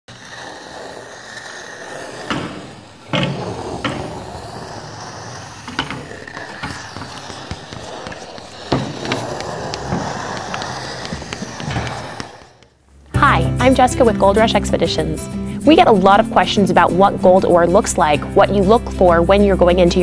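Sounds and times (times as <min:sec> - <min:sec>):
scratchy rattling noise: 0:00.1 - 0:12.7, 0:13.7 - 0:20.0
sharp knocks: 0:05.6 - 0:12.7.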